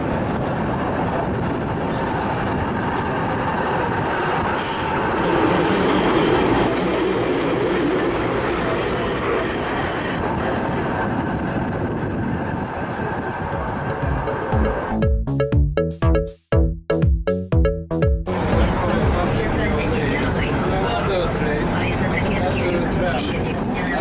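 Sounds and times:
tram wheels rumbling on rail: 0.0 - 14.9.

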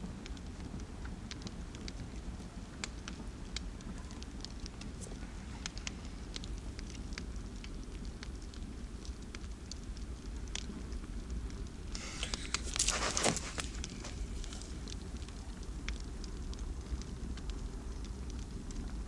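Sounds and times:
small crackles and ticks: 0.0 - 19.0
loud rustle: 11.8 - 14.9.

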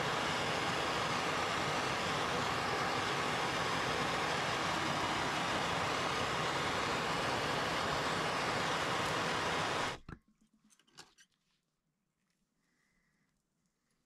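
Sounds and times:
gas torch hissing: 0.0 - 10.1.

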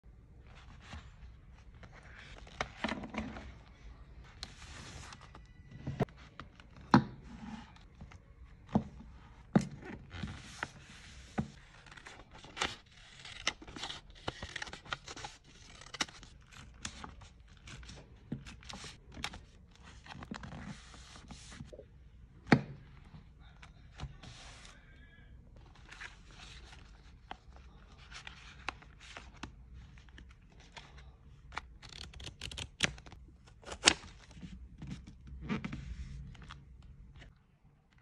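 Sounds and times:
paper rustling and crinkling: 9.9 - 21.7.

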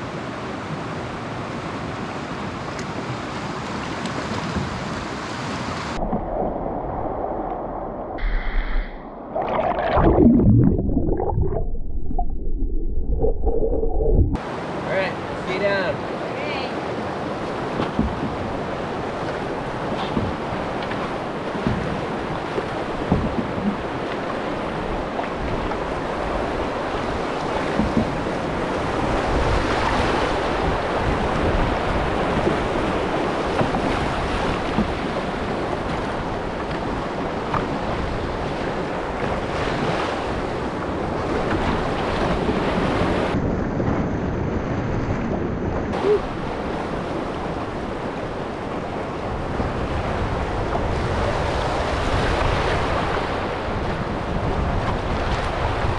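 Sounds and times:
wind noise on microphone: 21.6 - 55.9.

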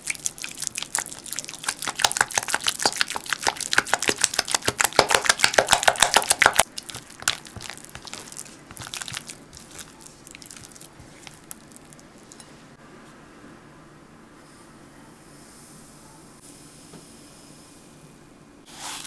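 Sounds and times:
batter scraping in a bowl: 0.4 - 12.4, 18.7 - 19.0.

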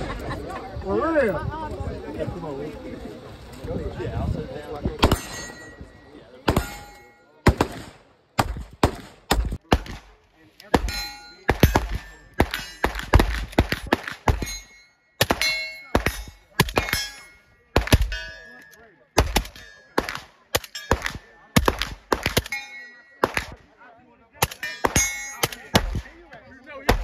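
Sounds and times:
steel targets ringing: 5.0 - 7.5, 10.8 - 23.6, 24.4 - 26.0
rapid gunfire: 6.5 - 14.6, 17.8 - 18.1, 19.2 - 22.5, 23.2 - 23.6, 24.4 - 26.1.

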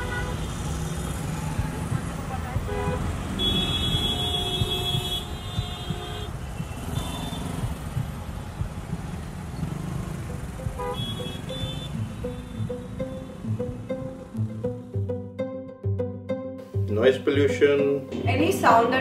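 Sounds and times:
vehicle horn honking: 0.0 - 0.6, 2.6 - 7.7, 10.8 - 12.6
busy road traffic: 0.0 - 15.2.

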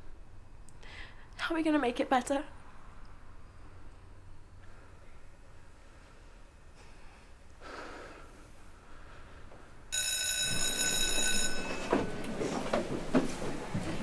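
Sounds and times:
school bell ringing: 9.9 - 12.8.

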